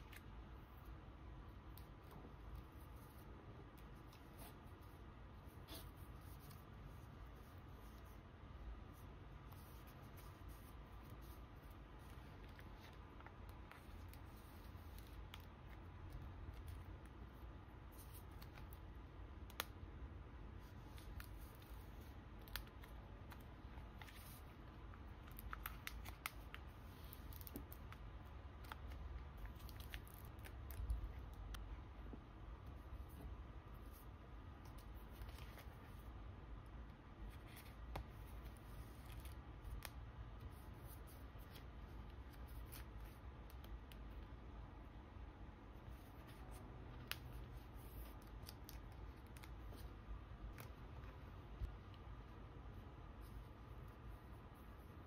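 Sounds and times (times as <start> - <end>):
plastic sleeves rustling: 1.6 - 18.9, 20.5 - 36.2.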